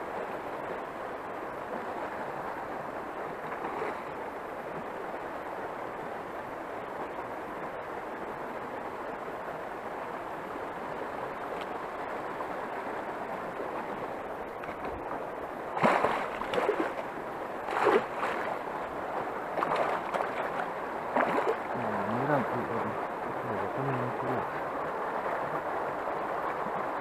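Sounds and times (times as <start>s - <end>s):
flowing river water: 0.0s - 27.0s
fish splashing and thrashing: 15.8s - 18.6s, 19.5s - 21.8s.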